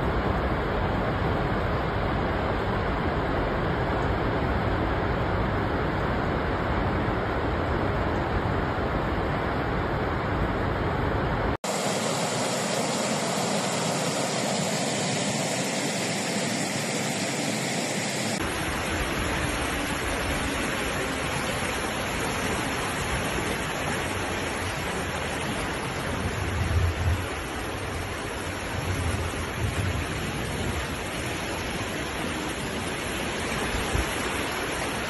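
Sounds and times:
floodwater rushing: 11.6 - 35.0.

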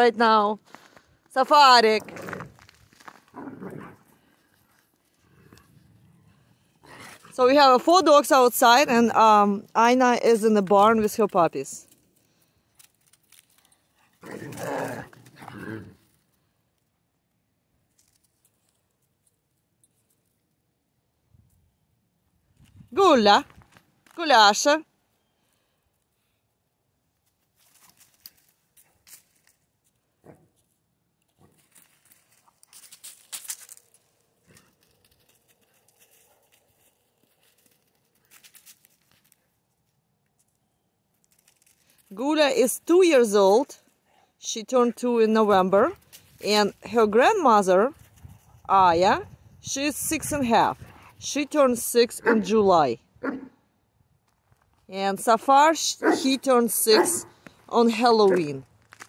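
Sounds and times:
footsteps crunching on snow: 1.9 - 5.3, 31.4 - 39.4, 56.1 - 59.0
dog growling: 3.3 - 4.3.

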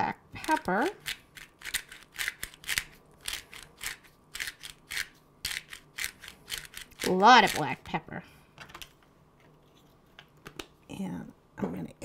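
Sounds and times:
pepper mill grinding: 0.4 - 7.8.

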